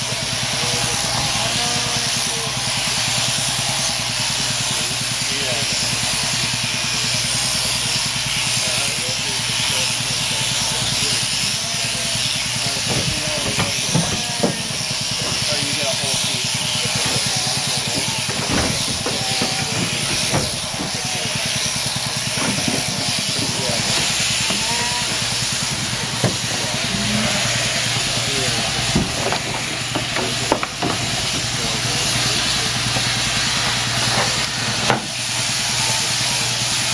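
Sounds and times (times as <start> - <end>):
shearing handpiece running: 0.0 - 36.9
sharp knocks: 18.2 - 21.0, 26.2 - 26.7, 28.9 - 31.1.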